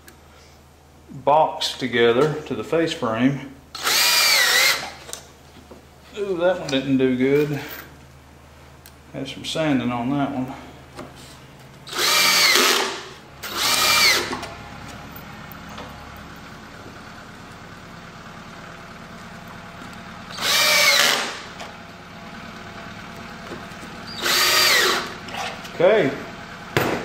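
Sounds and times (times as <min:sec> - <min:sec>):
cordless drill driving screws: 0:03.8 - 0:05.2, 0:11.9 - 0:14.5, 0:20.3 - 0:21.6, 0:24.0 - 0:25.5.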